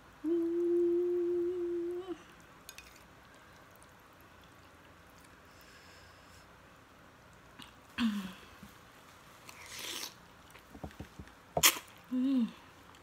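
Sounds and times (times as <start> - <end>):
person humming: 0.1 - 2.4, 12.1 - 12.7
person slurping noodles: 9.6 - 10.2
lip smack: 11.6 - 11.9.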